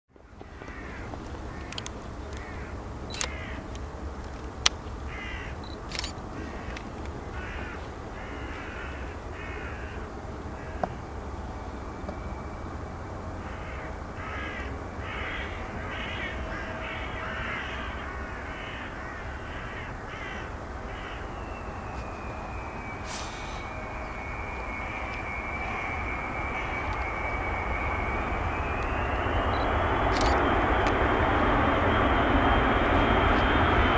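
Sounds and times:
jet engines with fan whine: 0.1 - 33.9
steady low rumble: 0.2 - 33.9
crows cawing: 0.4 - 3.8, 5.0 - 11.0, 13.4 - 21.4, 25.0 - 28.2
sharp clicks: 1.1 - 4.8, 5.6 - 7.2, 28.8 - 31.0.

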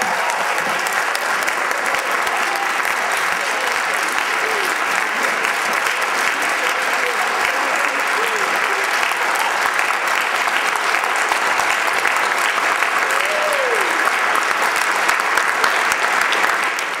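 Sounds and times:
audience applauding: 0.0 - 17.0
person cheering: 1.7 - 4.9, 6.7 - 9.7, 13.0 - 14.0.

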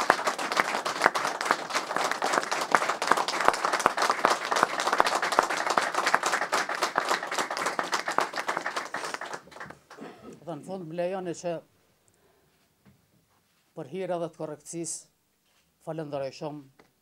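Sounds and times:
group applauding: 0.0 - 10.2.

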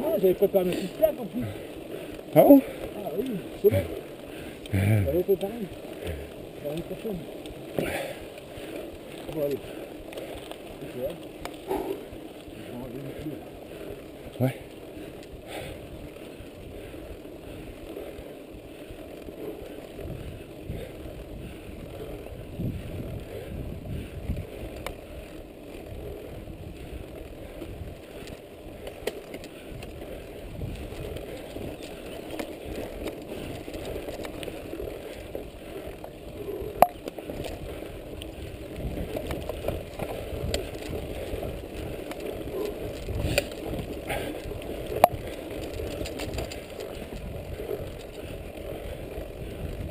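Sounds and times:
bike rattling over bumps: 0.0 - 49.9
bike tyres rolling on dirt: 0.0 - 49.9
small clicks: 24.7 - 25.0, 27.5 - 30.0.

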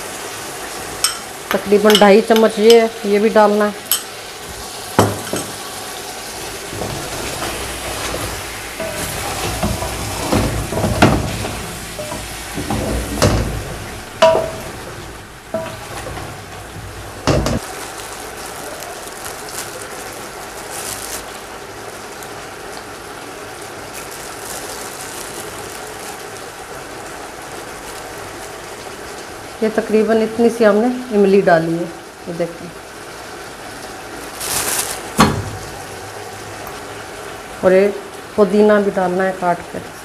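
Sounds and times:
masala sizzling: 0.0 - 40.0
spoon knocking against pot: 1.0 - 2.8, 5.0 - 5.6, 12.0 - 13.5, 14.2 - 14.8, 15.6 - 16.3
wooden spoon stirring in pot: 6.7 - 17.7.

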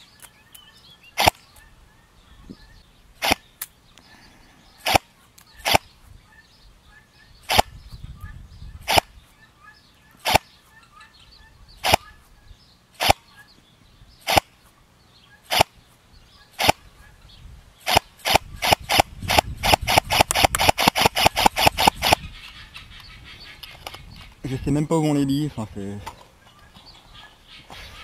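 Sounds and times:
airsoft rifle firing: 1.2 - 1.4, 3.2 - 3.5, 4.8 - 5.9, 7.5 - 7.7, 10.2 - 10.5, 13.0 - 13.3, 14.2 - 14.6, 15.5 - 15.8, 16.6 - 16.8, 17.8 - 22.2.

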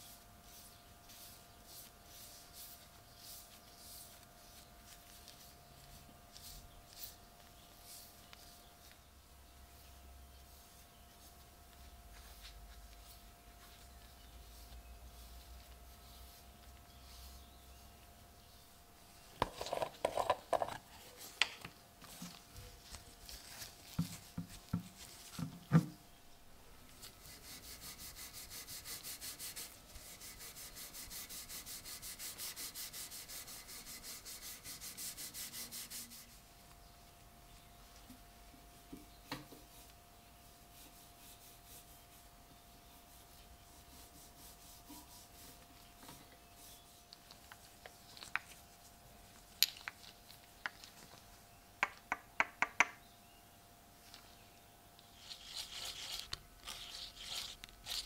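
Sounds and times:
cloth rubbing wax onto wood: 27.0 - 36.5, 39.6 - 48.2.

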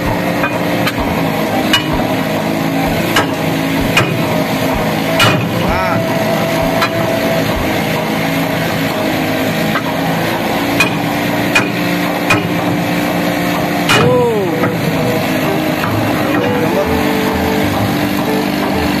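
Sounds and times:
hammer knocking on metal: 0.0 - 8.0
machinery hum: 0.0 - 19.0.

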